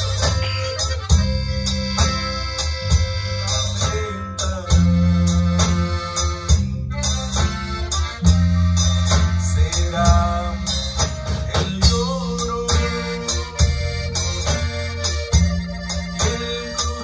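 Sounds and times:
drum kit beat: 0.0 - 17.0
electric bass notes: 0.0 - 17.0
keyboard: 0.0 - 17.0
strummed guitars: 0.0 - 17.0
man singing: 3.7 - 5.8, 9.3 - 14.9, 16.1 - 17.0.

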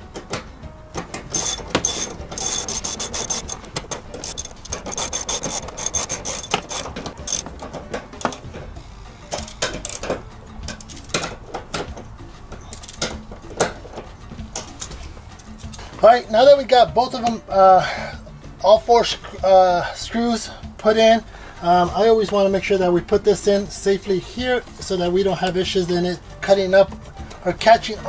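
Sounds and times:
ratchet pawl clicking: 1.3 - 7.5, 8.2 - 8.4.

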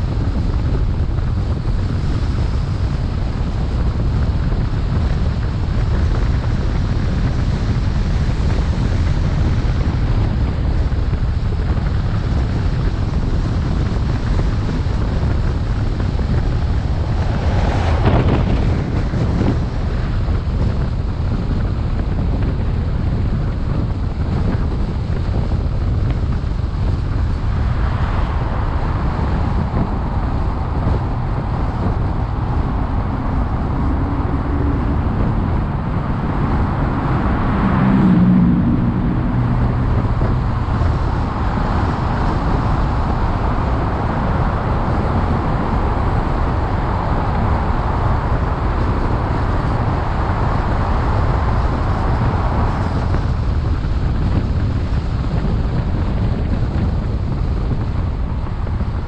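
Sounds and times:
car road noise: 0.0 - 59.0
wind buffeting microphone: 0.0 - 59.0.

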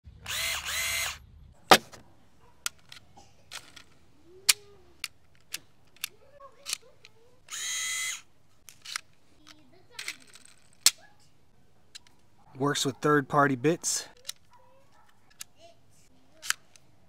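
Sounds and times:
power screwdriver motor whirring: 0.2 - 1.2, 7.4 - 9.0
sharp plastic clicks: 2.6 - 11.0, 11.9 - 12.3, 14.1 - 15.6, 16.4 - 16.9.

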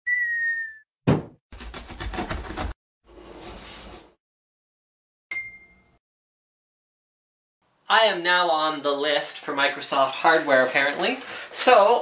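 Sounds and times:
cartoon whistle: 0.0 - 0.8
thud: 1.1 - 1.4.

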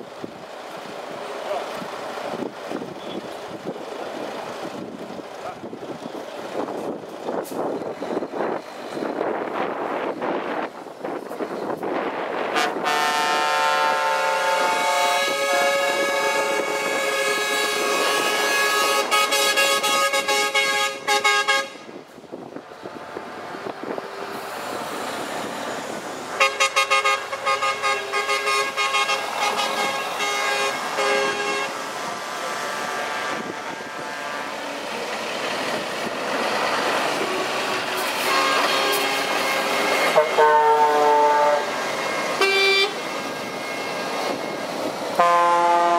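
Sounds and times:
truck air horns: 12.5 - 22.0, 26.4 - 31.8, 32.7 - 34.9, 37.1 - 44.5, 45.2 - 45.9.

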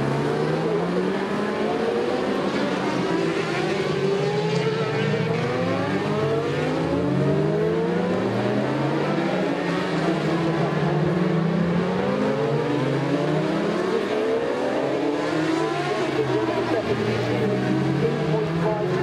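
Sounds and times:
motorcycle engines accelerating: 0.0 - 19.0.

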